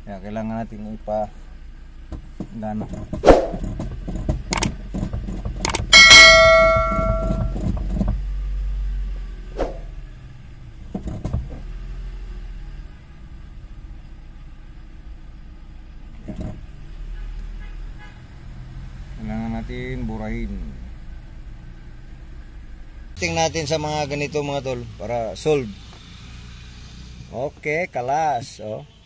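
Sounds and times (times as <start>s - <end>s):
knocks and clicks: 2.1s - 8.2s
low hum: 5.6s - 7.7s
loud metallic clang ringing: 5.7s - 7.6s.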